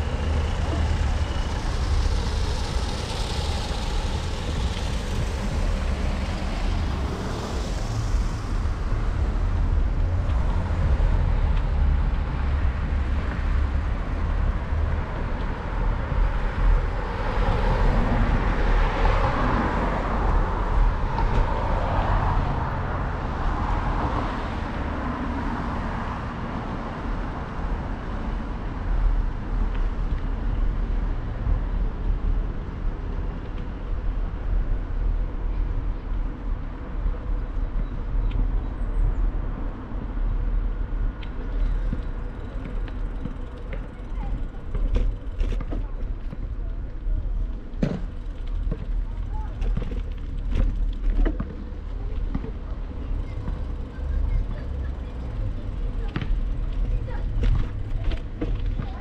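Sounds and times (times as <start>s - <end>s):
steady low rumble: 0.0s - 25.4s
cars passing: 0.0s - 59.0s.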